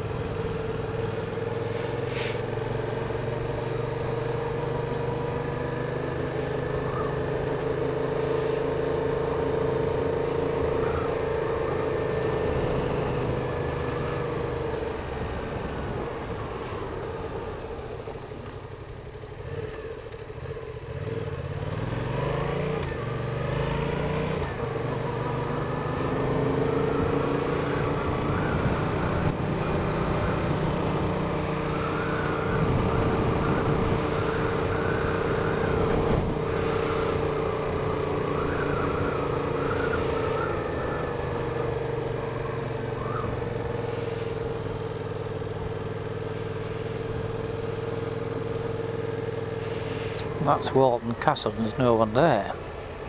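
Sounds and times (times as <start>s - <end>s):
motorcycle engine accelerating: 0.0s - 53.0s
wind rushing over microphone: 32.2s - 41.4s.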